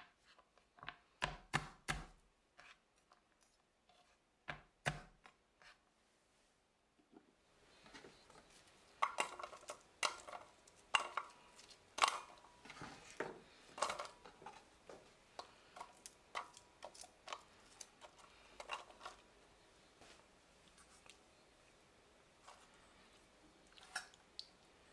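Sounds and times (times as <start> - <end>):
onion pieces clattering into pot: 9.0 - 14.7, 15.4 - 19.2.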